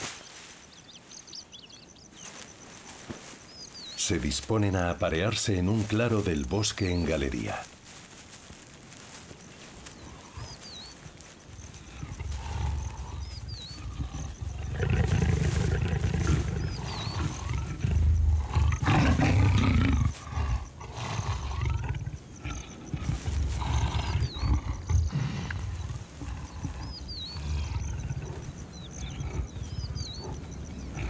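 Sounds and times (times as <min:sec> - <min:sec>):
bird chirp: 0:00.1 - 0:07.6, 0:09.5 - 0:31.0
leopards growling: 0:10.0 - 0:31.0.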